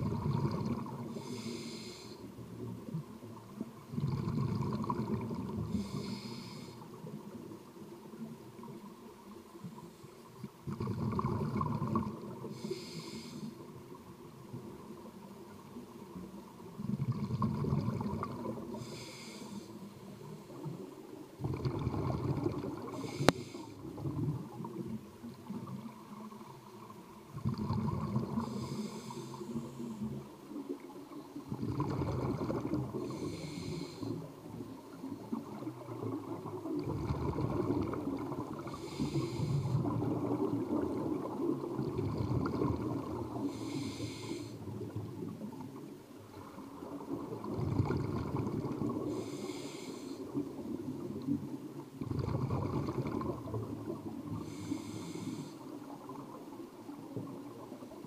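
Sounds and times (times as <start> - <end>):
exhaled bubbles underwater: 0.0 - 9.8, 10.4 - 58.0
hissing regulator inhale: 1.1 - 2.3, 5.5 - 7.0, 12.4 - 13.7, 18.7 - 20.7, 22.9 - 24.0, 28.2 - 30.2, 33.0 - 34.3, 38.6 - 40.0, 43.3 - 44.7, 48.9 - 50.4, 54.3 - 55.8.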